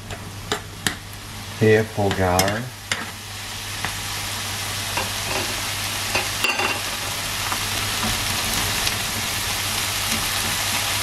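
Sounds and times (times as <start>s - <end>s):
vegetables sizzling in a pan: 0.0s - 11.0s
utensils clicking against pans: 2.0s - 3.1s.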